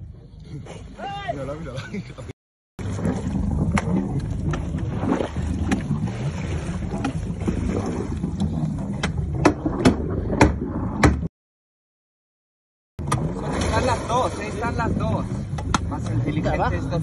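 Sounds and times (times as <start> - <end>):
water sloshing: 2.8 - 11.3, 13.0 - 17.0.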